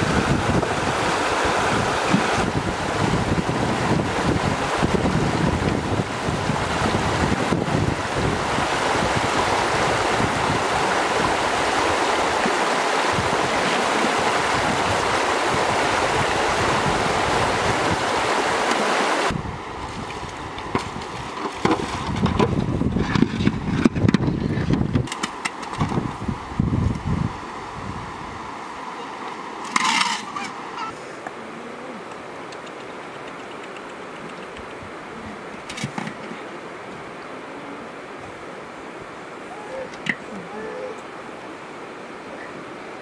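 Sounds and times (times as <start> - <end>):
wind buffeting microphone: 0.0 - 18.6, 19.2 - 25.1, 25.7 - 28.6
river water rushing over stones: 0.0 - 43.0.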